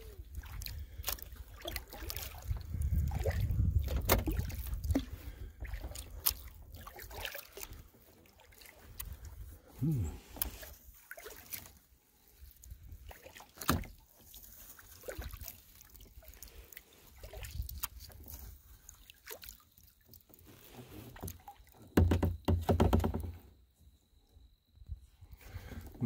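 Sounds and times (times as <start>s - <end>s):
paddle strokes in water: 0.0s - 23.3s
small knocks: 21.2s - 23.4s.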